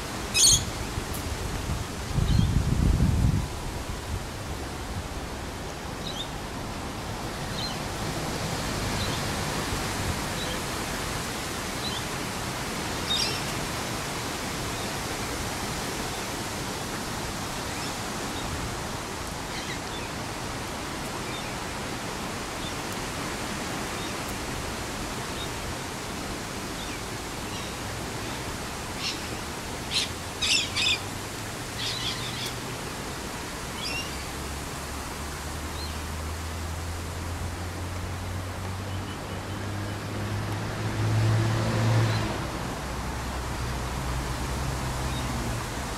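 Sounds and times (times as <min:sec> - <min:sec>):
steady outdoor noise: 0:00.0 - 0:45.9
birds chirping: 0:00.3 - 0:00.7, 0:29.0 - 0:31.0, 0:31.7 - 0:32.6.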